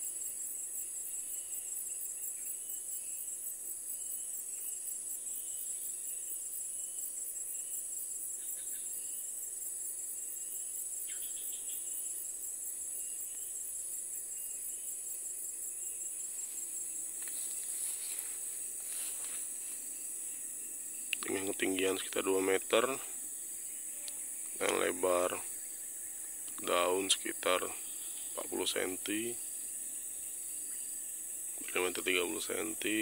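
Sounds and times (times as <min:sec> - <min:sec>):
insects chorus pulsing: 0:00.0 - 0:33.0
faint clicks: 0:24.0 - 0:24.8.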